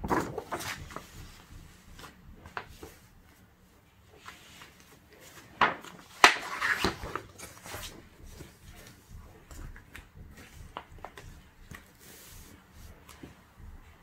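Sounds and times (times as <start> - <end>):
paper crackles: 0.0 - 3.1
paper rustling: 0.0 - 3.4, 4.1 - 13.6.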